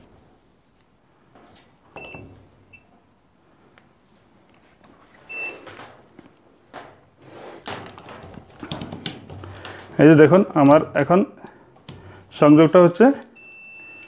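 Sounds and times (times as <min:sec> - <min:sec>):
multimeter short high beeps: 0:05.3 - 0:05.6, 0:13.4 - 0:14.0.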